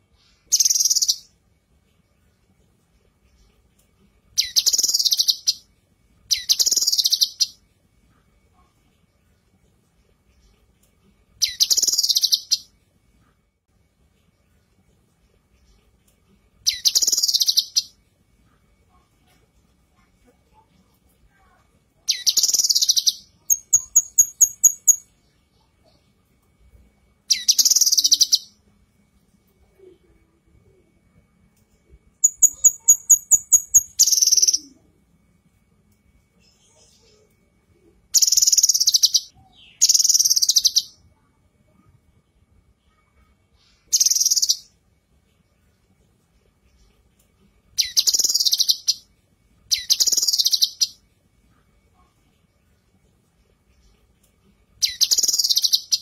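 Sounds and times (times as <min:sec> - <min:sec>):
bird singing chattering phrases: 0:04.4 - 0:05.6, 0:06.3 - 0:07.6, 0:11.4 - 0:12.6, 0:16.6 - 0:17.9, 0:22.1 - 0:25.0, 0:27.3 - 0:28.6, 0:32.2 - 0:34.8, 0:38.2 - 0:41.0, 0:47.8 - 0:49.0, 0:49.7 - 0:51.0, 0:54.8 - 0:56.0.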